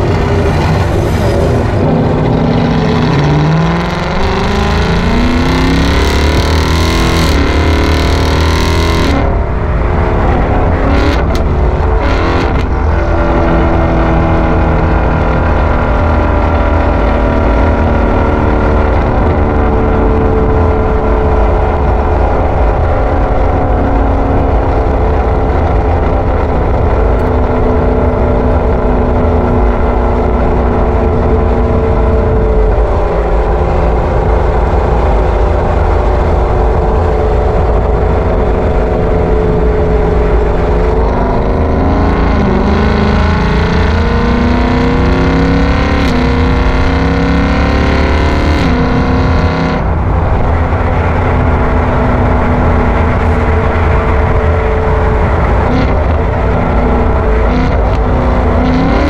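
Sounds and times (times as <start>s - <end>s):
car engine driving: 0.0s - 59.0s
constant low rumble: 0.0s - 59.0s.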